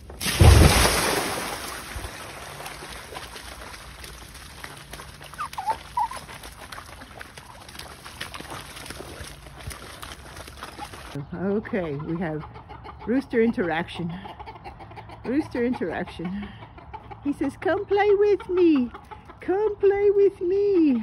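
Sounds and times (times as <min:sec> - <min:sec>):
dog splashing in water: 0:00.2 - 0:11.2.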